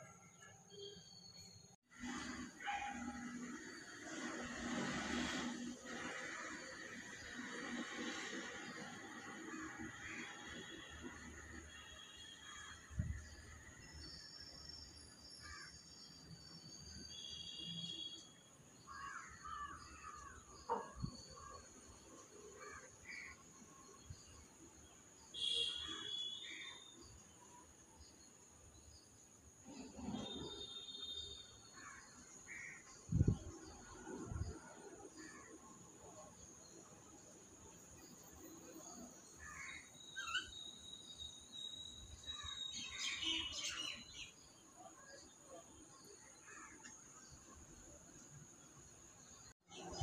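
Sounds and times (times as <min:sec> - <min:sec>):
bird chirps: 0:39.9 - 0:44.1.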